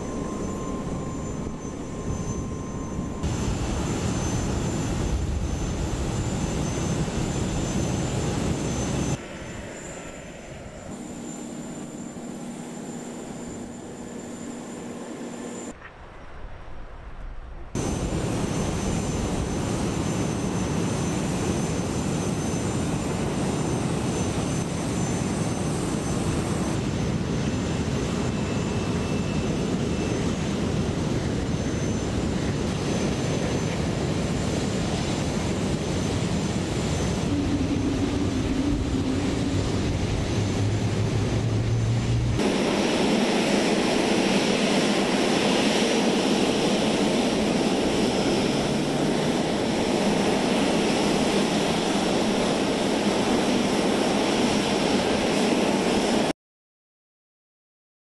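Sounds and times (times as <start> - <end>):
thin high whine: 0.0 - 15.8, 35.6 - 52.7
jet engines running: 0.0 - 16.2, 17.6 - 56.3.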